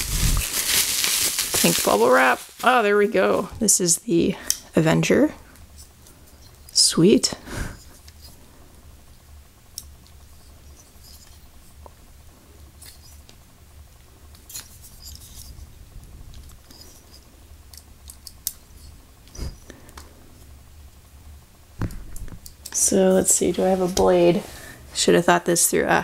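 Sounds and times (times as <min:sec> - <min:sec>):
low steady background hum: 0:00.0 - 0:26.0
light clicks and rubs handling metal: 0:07.8 - 0:08.4.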